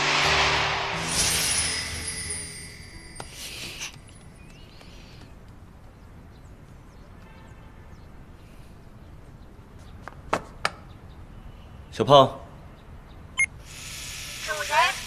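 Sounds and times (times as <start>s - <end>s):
small birds chirping: 3.3s - 13.8s.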